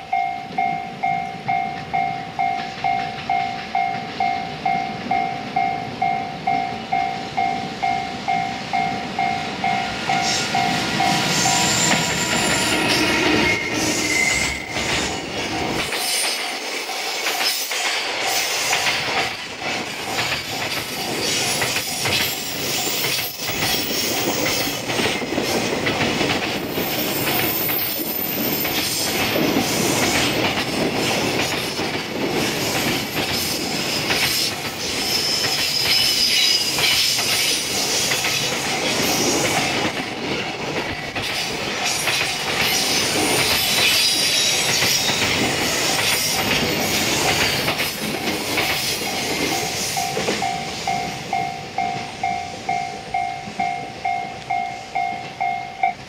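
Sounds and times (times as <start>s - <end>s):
wheel squeals: 9.7s - 15.3s, 34.0s - 37.6s
train wheels clattering over joints: 9.7s - 52.3s.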